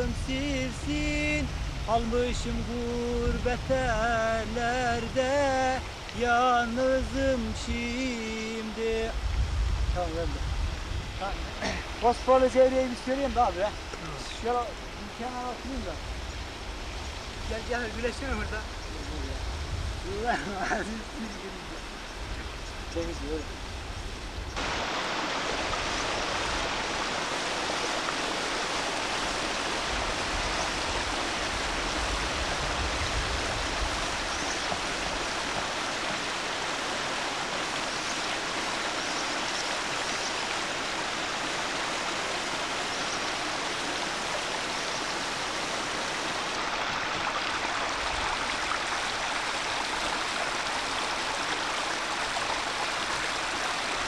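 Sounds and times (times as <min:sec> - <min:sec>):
water splashing over rocks: 0:00.0 - 0:09.4, 0:24.6 - 0:54.0.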